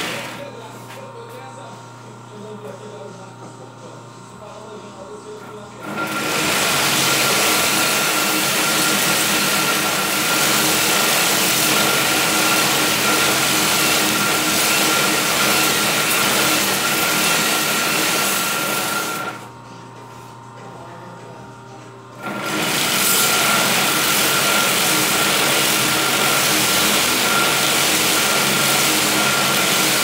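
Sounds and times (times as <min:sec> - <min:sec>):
motor and belt running: 0:00.0 - 0:00.8, 0:02.4 - 0:19.6, 0:20.6 - 0:30.0
belt sander grinding with whine: 0:05.8 - 0:19.5, 0:22.2 - 0:30.0.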